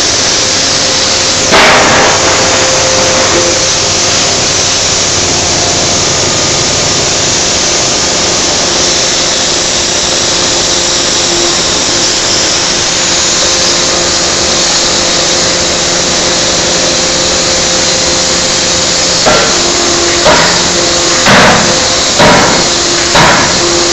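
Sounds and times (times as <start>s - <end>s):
forging hammer blow: 0.0s - 23.9s
machinery running: 0.0s - 23.9s.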